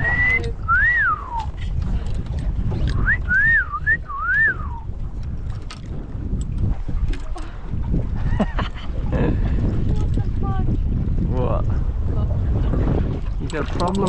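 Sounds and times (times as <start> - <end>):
person whistling a tune: 0.0 - 1.5, 3.0 - 4.9
wind rumble on microphone: 0.0 - 14.0.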